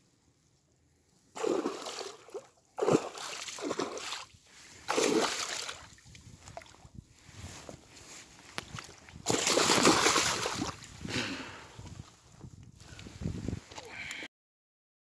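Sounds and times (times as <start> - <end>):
fish thrashing and splashing water: 1.4 - 6.8, 8.8 - 10.9.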